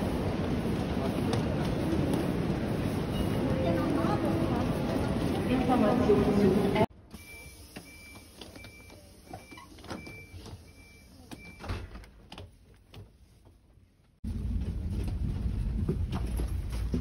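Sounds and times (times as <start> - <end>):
train rumble inside carriage: 0.0 - 6.9, 14.2 - 17.0.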